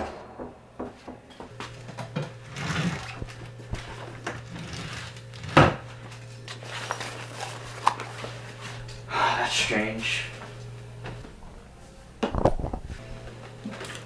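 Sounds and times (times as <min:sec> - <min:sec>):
sharp knock: 0:00.0 - 0:01.5
steady low hum: 0:00.0 - 0:14.0.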